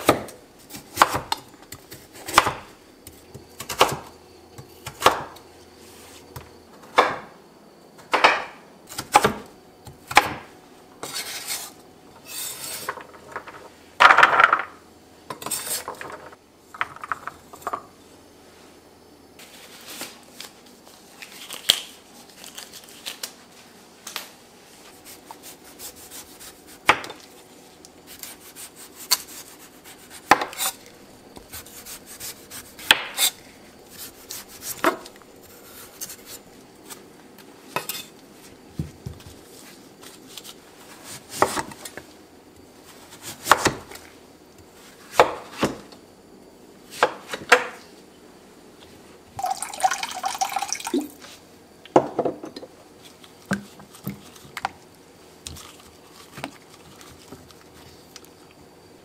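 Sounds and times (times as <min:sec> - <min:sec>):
pieces clattering into tray: 0:12.8 - 0:14.8
knife peeling on board: 0:28.1 - 0:36.5.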